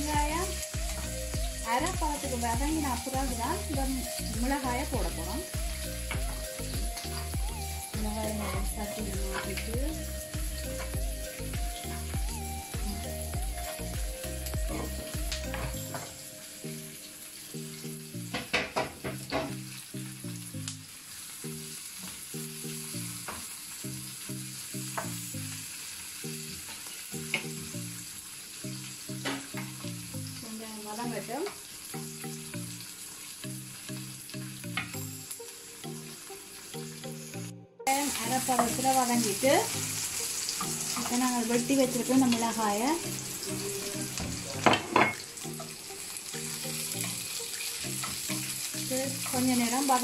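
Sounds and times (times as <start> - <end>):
onions sizzling in oil: 0.0 - 50.0
soft background music: 0.0 - 50.0.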